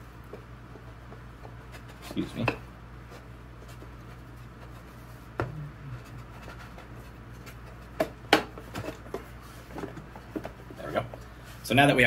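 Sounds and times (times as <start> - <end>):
wood rubbing and scraping: 3.1 - 10.8.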